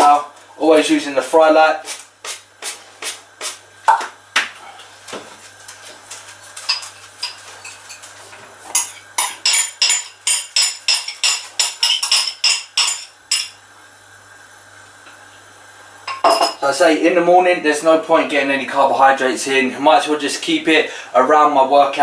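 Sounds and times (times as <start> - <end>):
utensil clinking against a dish: 6.6 - 8.1, 8.7 - 13.6.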